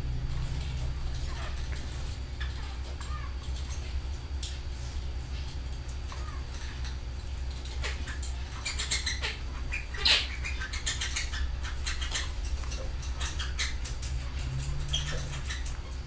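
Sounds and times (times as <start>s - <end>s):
steady low hum: 0.0s - 16.0s
bird chirps: 7.9s - 16.0s.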